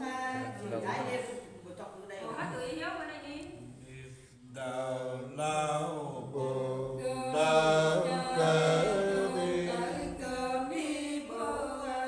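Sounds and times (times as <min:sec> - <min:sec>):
person singing unaccompanied: 0:06.4 - 0:12.0.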